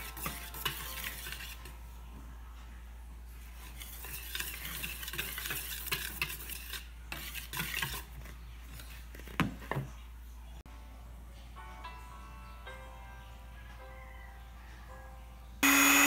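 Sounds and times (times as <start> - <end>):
whisk swishing through flour: 0.0 - 2.0, 3.3 - 9.0.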